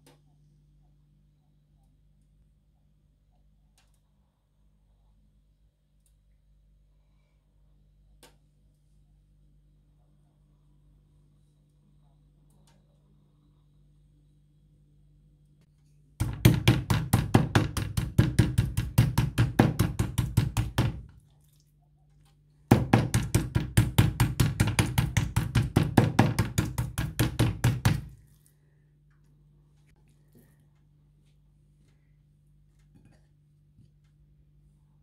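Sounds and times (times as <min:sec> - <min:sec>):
meat mallet pounding on wood: 0:16.2 - 0:21.1, 0:22.7 - 0:28.2.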